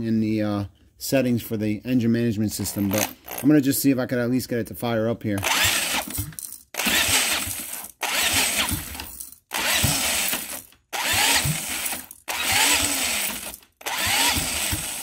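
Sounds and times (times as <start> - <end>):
electric drill cranking engine: 2.9 - 3.4, 5.4 - 15.0.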